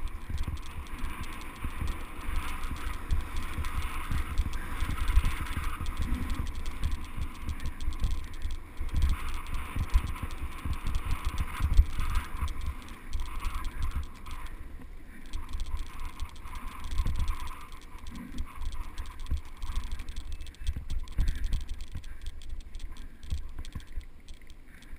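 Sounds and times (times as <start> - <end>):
bike rattles and knocks: 0.0 - 14.5
wind rumble on microphone: 0.0 - 14.5, 15.3 - 24.2.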